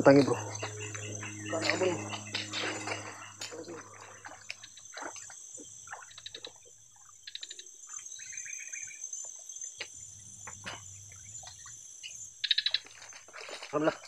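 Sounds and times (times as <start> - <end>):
rapid pulsed trilling: 0.0 - 7.2
bird-like chirping: 0.0 - 9.3
insects droning: 0.0 - 14.0
person wading through water: 0.4 - 6.1.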